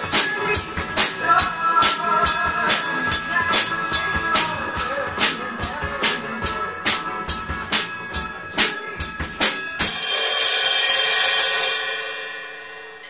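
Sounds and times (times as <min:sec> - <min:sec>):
acoustic drum kit beat: 0:00.0 - 0:12.7
cymbal crash: 0:06.9 - 0:13.0.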